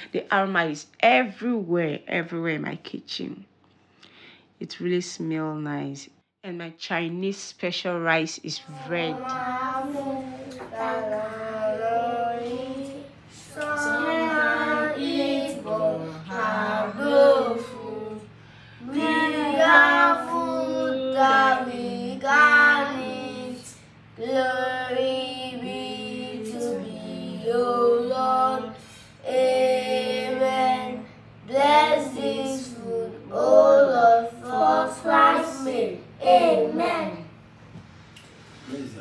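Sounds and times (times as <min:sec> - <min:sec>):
woman and children singing: 0:08.6 - 0:37.3.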